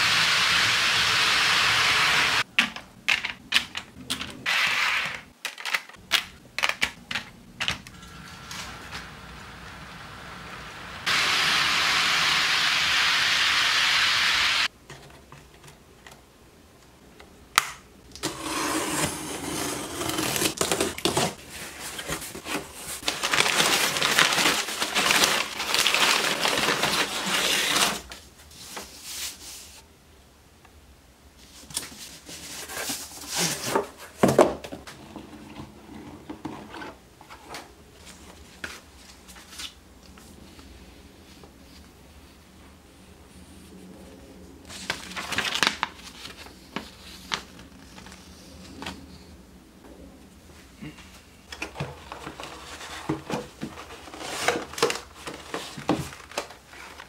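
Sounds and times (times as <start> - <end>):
steady hiss: 0.0 - 2.4, 7.9 - 14.7
cardboard box being opened: 18.2 - 28.1
packing paper rustling: 18.3 - 29.8, 44.7 - 49.0, 51.6 - 57.0.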